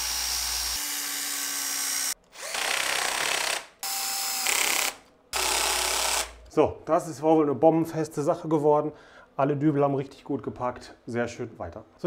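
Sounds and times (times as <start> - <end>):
cordless drill driving screws: 0.0 - 6.4.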